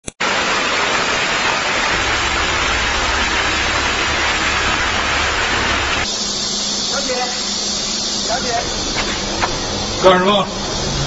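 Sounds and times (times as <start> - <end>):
water fountain splashing: 0.0 - 10.8
low hum: 1.8 - 11.0.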